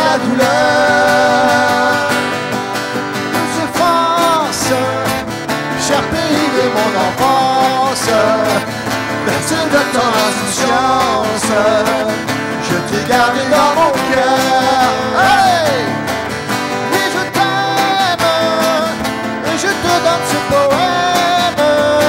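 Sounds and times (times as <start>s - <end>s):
person singing wordless notes: 0.0s - 16.1s
acoustic guitar: 0.0s - 22.0s.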